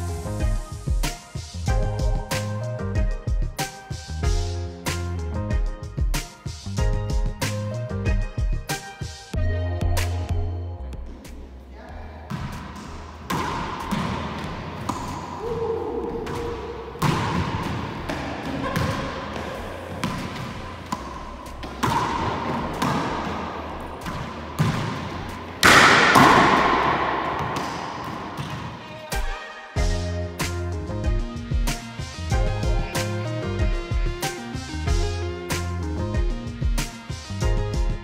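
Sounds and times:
racquetball smacks echoing: 12.3 - 29.1.

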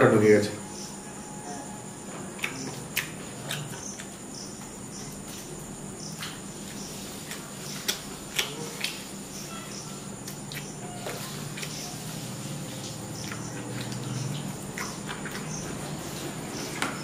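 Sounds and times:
high-pitched insect chirring: 0.3 - 7.8, 8.5 - 16.8
person chewing and smacking: 2.4 - 4.2, 6.1 - 9.2, 10.2 - 12.1, 12.8 - 17.0.

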